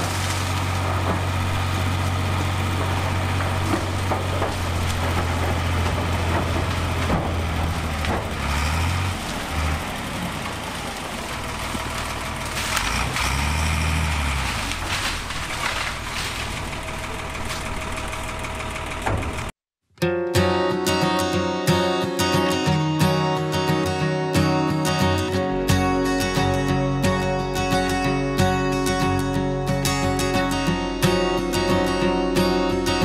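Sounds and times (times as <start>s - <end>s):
knocks and clatters: 0.0s - 10.6s, 14.4s - 19.6s
diesel engine running under load: 0.0s - 19.6s.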